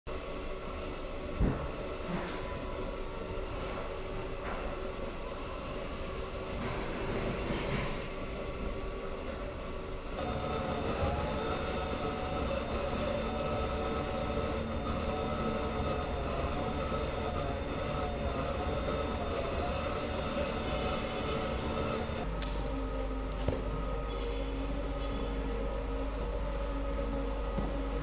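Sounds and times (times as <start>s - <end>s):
drive motors whining: 10.1s - 28.0s.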